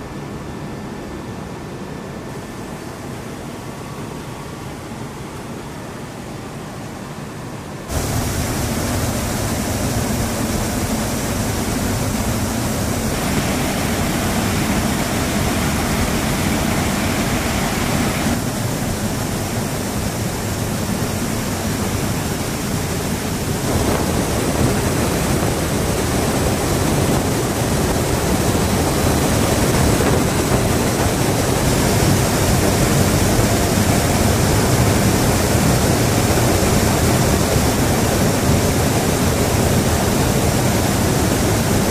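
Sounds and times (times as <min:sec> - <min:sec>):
aircraft engines and airflow rushing: 0:00.0 - 0:41.9.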